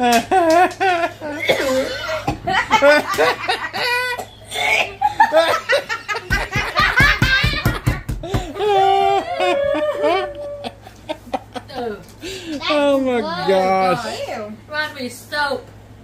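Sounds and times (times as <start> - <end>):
people laughing: 0.0 - 12.0.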